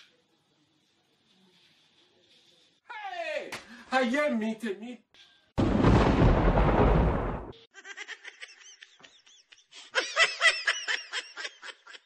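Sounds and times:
thunderclap: 5.6s - 7.6s.

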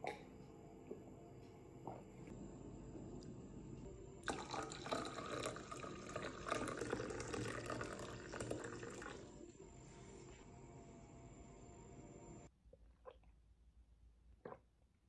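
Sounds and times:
liquid pouring into cup: 4.2s - 9.4s.

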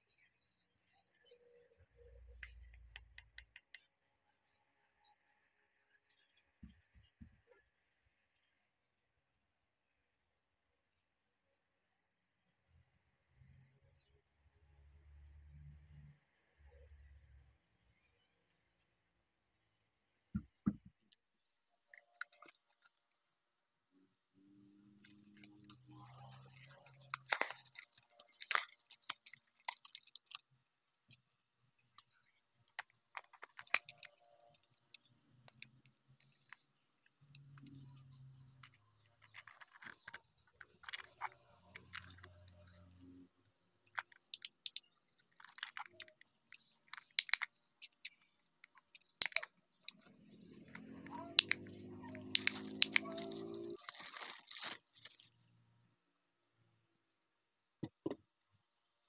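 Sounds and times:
plastic packaging crinkling: 22.1s - 23.0s, 25.0s - 30.4s, 31.9s - 35.6s, 39.2s - 42.6s, 43.9s - 55.4s.

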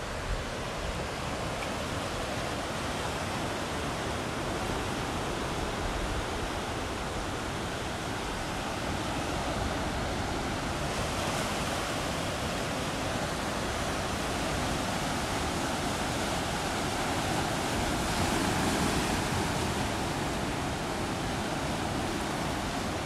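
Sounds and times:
ocean surf rushing: 0.0s - 23.0s.

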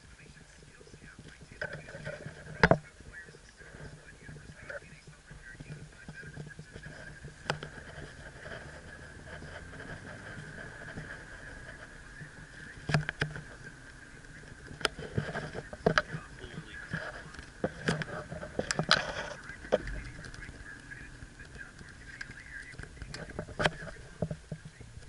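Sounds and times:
car road and engine noise: 0.0s - 25.0s
sharp clicks and knocks: 5.6s - 16.2s, 16.8s - 25.0s.

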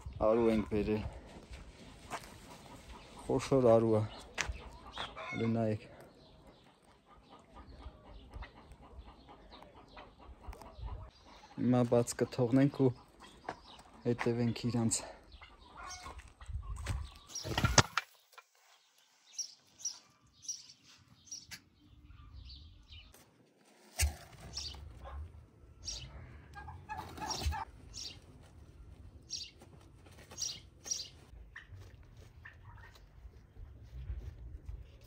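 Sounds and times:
turkey flapping wings: 23.6s - 25.2s, 26.6s - 28.9s.

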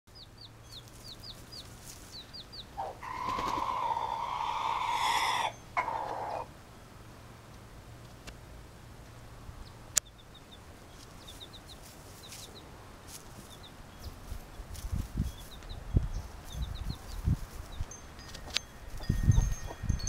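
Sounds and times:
chick peeping: 0.1s - 6.5s, 9.6s - 12.7s, 13.4s - 19.9s
rooster crowing: 2.8s - 6.5s.

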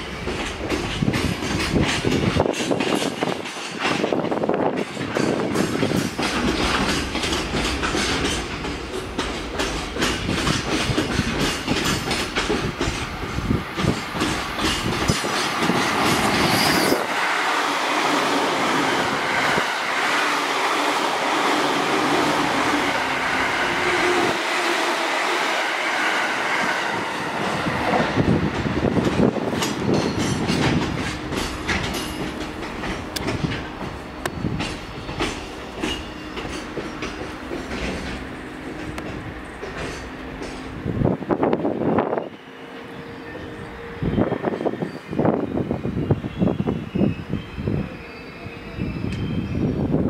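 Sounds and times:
train wheels clacking over rail joints: 0.0s - 24.7s, 26.0s - 40.9s.

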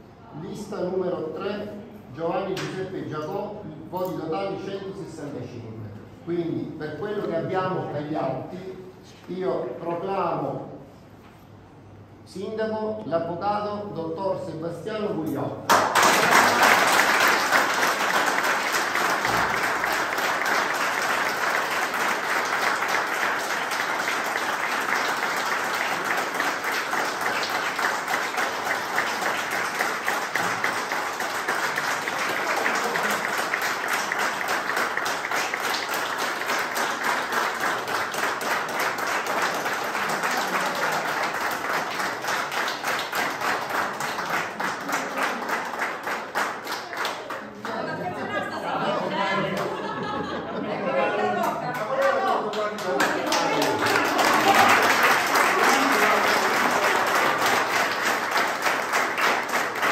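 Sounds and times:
crowd applauding: 15.7s - 47.7s, 51.4s - 59.9s.

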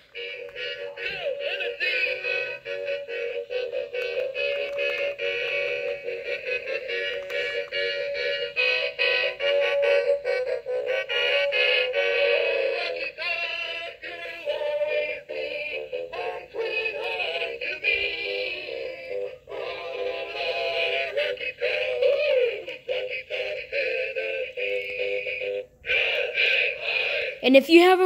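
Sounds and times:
tinny song from small speaker: 0.0s - 28.0s.

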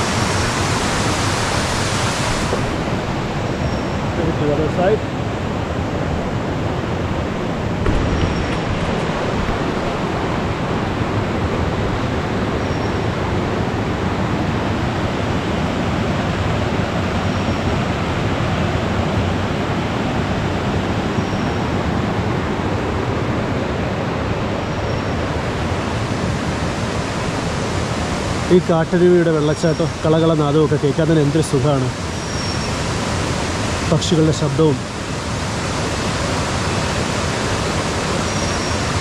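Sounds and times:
stream rushing over rocks: 0.0s - 39.0s
faint high bird call: 32.1s - 32.8s, 38.2s - 39.0s.

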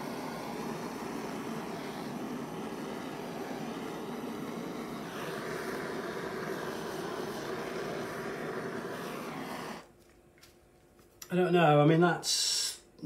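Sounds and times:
electric air blower whirring: 0.0s - 9.9s.

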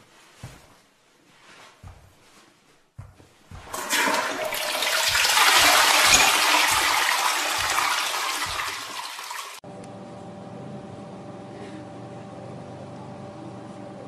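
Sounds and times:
toilet flushing: 3.7s - 9.6s.

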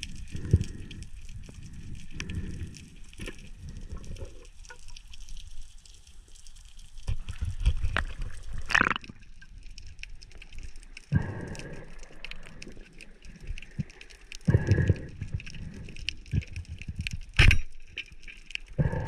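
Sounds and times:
muffled underwater movement: 0.0s - 19.0s
knocks and clicks underwater: 6.9s - 19.0s.

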